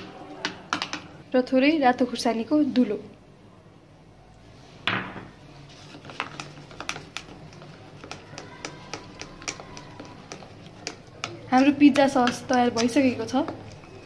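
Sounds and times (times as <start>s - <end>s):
metal spoon stirring in a bowl: 5.6s - 14.0s.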